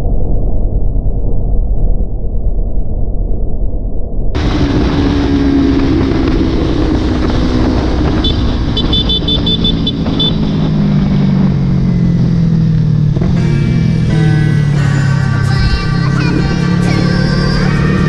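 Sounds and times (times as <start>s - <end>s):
wind rushing over microphone: 4.3s - 14.2s
motorcycle engine cruising: 4.4s - 18.0s.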